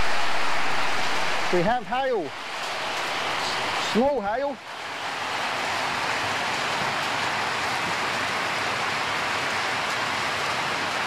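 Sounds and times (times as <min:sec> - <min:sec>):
rain and hail on metal roof: 0:02.3 - 0:11.0.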